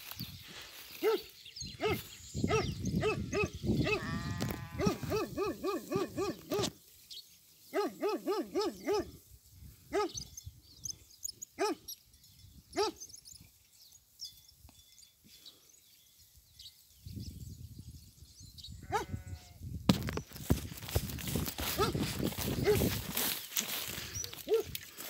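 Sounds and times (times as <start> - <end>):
dog barking: 1.0 - 4.0, 4.8 - 6.7, 7.7 - 9.2, 9.9 - 10.2, 11.6 - 11.9, 12.8 - 13.0, 18.9 - 19.1, 21.7 - 22.9, 24.4 - 24.7.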